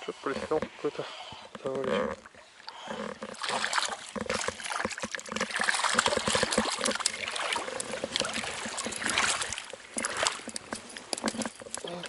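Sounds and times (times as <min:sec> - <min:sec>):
running river water: 0:00.0 - 0:12.0
water splashing: 0:00.0 - 0:12.0
quick clicks and rustles: 0:03.2 - 0:12.0.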